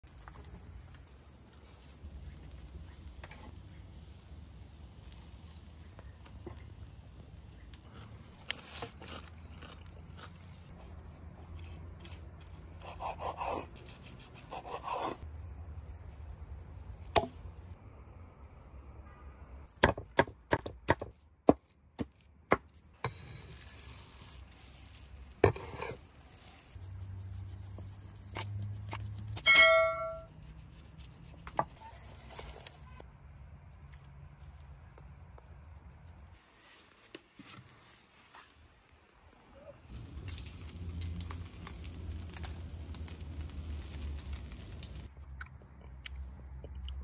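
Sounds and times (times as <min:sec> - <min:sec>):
knife scraping meat: 0:11.5 - 0:15.2, 0:23.1 - 0:29.4.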